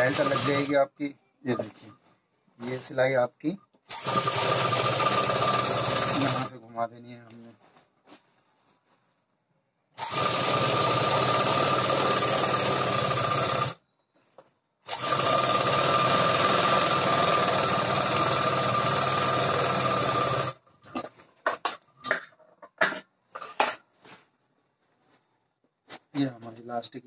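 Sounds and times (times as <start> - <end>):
sewing machine stitching: 0.0 - 0.8, 3.9 - 6.6, 10.0 - 13.8, 14.9 - 20.6.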